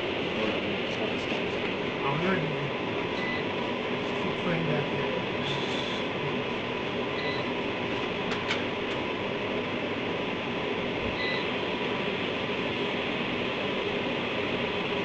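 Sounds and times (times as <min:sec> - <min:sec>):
fan hiss and hum: 0:00.0 - 0:15.0.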